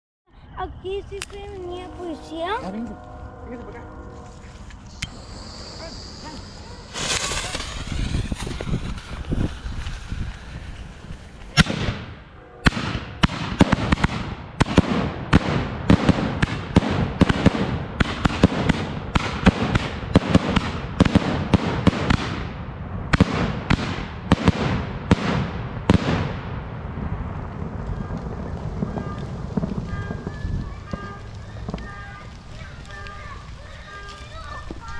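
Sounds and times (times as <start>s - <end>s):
fuse hiss: 4.9s - 8.0s
rapid volley of firework reports: 4.9s - 26.3s, 27.0s - 34.9s
firework bang: 4.9s - 33.4s.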